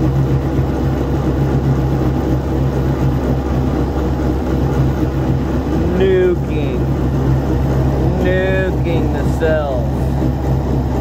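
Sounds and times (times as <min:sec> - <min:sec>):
electric motor humming: 0:00.0 - 0:11.0.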